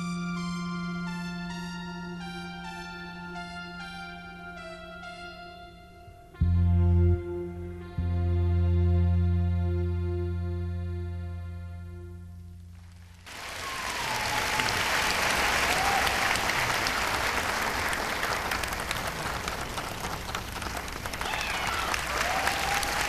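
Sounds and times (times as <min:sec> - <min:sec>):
music: 0:00.0 - 0:14.7
audience applauding: 0:12.8 - 0:23.0
voices calling out: 0:13.3 - 0:23.0.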